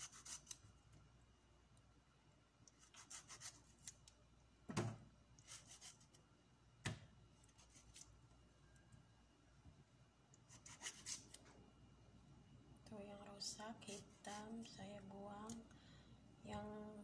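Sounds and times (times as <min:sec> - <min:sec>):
knife scraping tomato skins: 0:00.0 - 0:00.8, 0:02.7 - 0:04.1, 0:05.4 - 0:06.2, 0:07.4 - 0:08.2, 0:10.4 - 0:11.4, 0:13.8 - 0:14.7.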